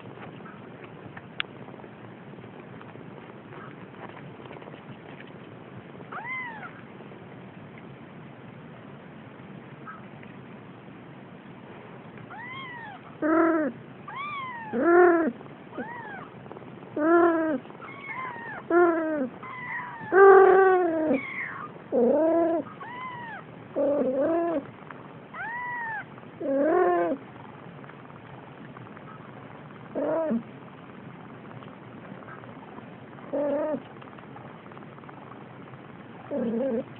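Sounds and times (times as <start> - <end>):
cat meowing: 6.1 - 6.8, 12.3 - 16.3, 17.0 - 24.6, 25.3 - 27.2
kitten mewing: 6.1 - 6.8, 12.3 - 16.4, 17.0 - 24.7, 25.3 - 27.2.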